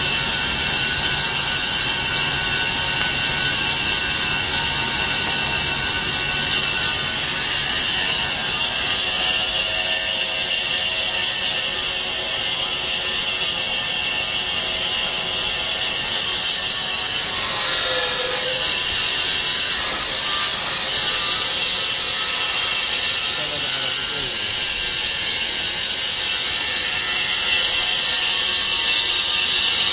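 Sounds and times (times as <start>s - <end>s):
band saw cutting foam whine: 0.0s - 29.9s.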